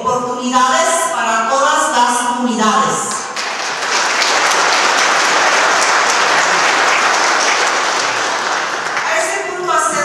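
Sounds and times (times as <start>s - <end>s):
audience applauding: 3.3s - 9.5s.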